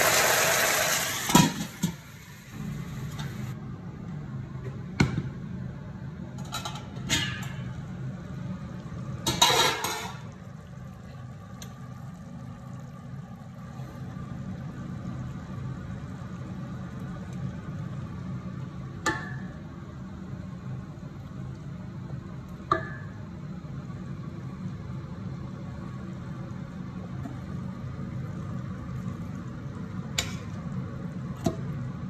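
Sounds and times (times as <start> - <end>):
metal pot lid clattering: 9.2 - 10.3.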